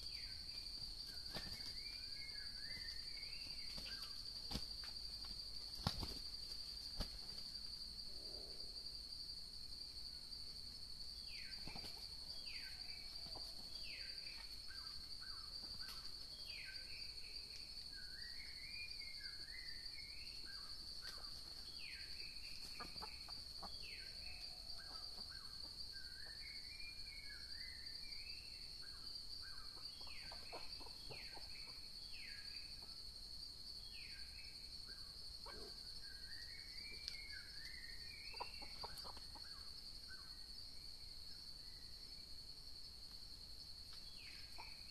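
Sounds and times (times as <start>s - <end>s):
high insect drone: 0.0s - 44.9s
hens calling and clucking: 22.6s - 23.8s, 38.3s - 39.4s.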